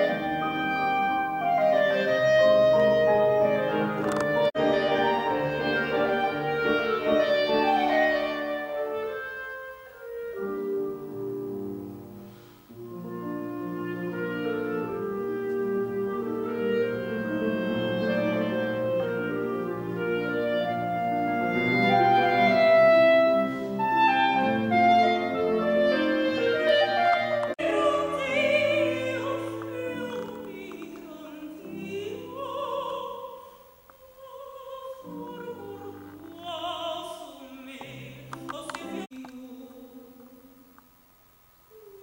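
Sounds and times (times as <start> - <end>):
grand piano accompaniment: 0.0 - 33.2
woman singing opera: 13.3 - 40.8.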